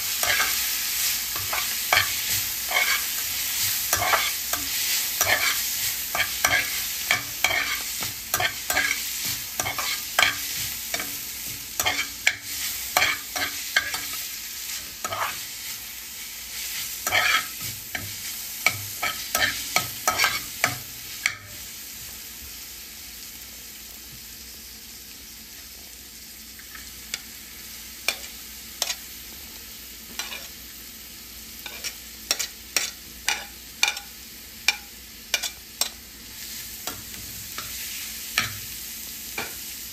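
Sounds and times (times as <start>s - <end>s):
spatula scraping frying pan: 0.0s - 21.6s, 30.1s - 30.6s, 31.6s - 34.1s, 34.7s - 38.7s
leaves sizzling in pan: 0.0s - 39.9s.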